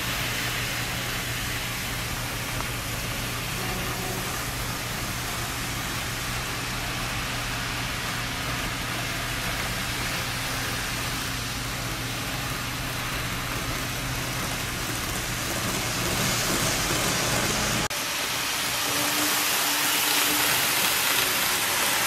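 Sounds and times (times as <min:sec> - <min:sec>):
model train whir and rail rumble: 0:00.0 - 0:22.0.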